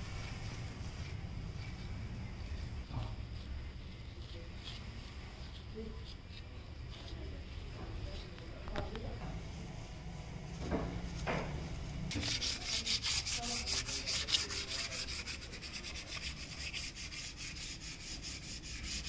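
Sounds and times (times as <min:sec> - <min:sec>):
sandpaper scratching on wood: 0:12.1 - 0:19.0.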